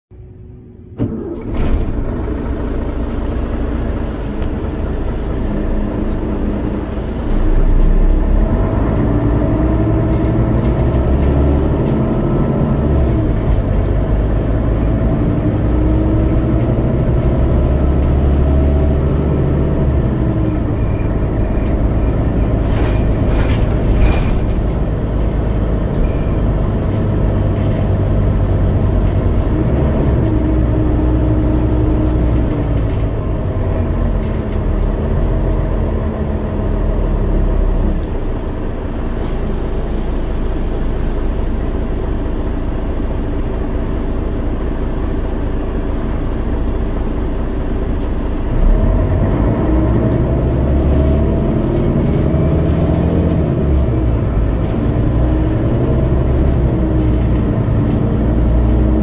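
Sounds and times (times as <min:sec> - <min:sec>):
bus engine running: 0:00.1 - 0:59.0
rattles: 0:20.8 - 0:30.7.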